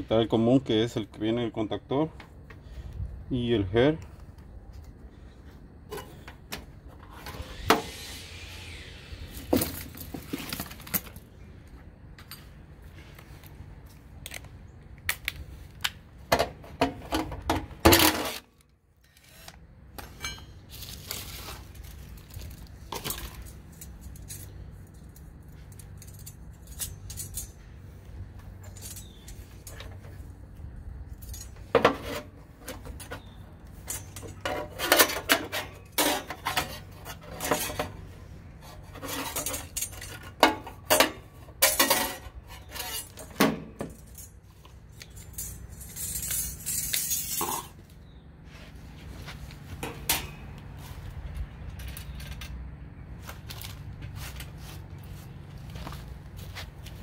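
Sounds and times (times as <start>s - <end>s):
metallic clinks of tools and parts: 22.9s - 30.4s, 31.1s - 32.1s, 32.7s - 37.9s, 39.0s - 48.0s.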